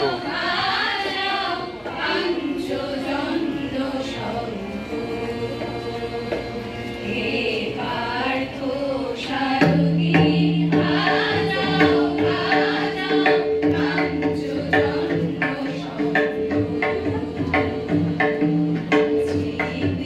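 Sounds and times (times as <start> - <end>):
women singing in unison: 0.0 - 20.0
drum strokes: 9.4 - 20.0.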